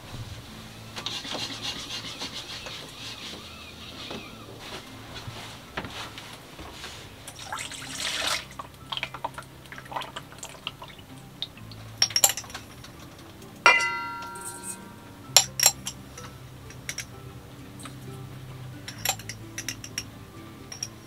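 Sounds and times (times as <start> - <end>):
liquid pouring: 7.3 - 11.6
spoon and jar clinking: 7.3 - 17.2, 18.8 - 21.0
metal spoon striking steel bowl: 13.7 - 16.0.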